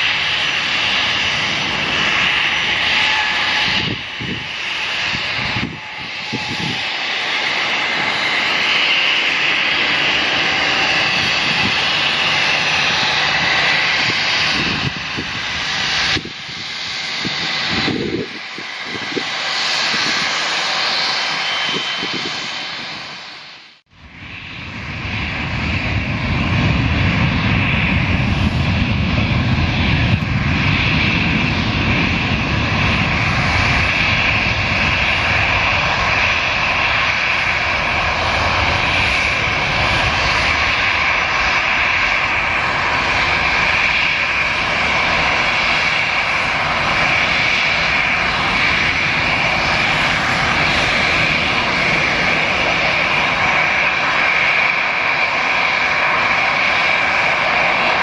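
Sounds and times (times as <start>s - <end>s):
jet engines whining: 0.0s - 58.0s.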